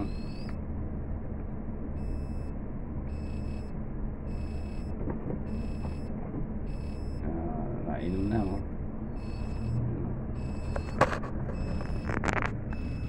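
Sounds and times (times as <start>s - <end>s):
electronic beeps: 0.0s - 0.6s, 2.0s - 6.1s, 6.7s - 7.3s, 8.2s - 13.0s
steady low hum: 0.0s - 13.0s.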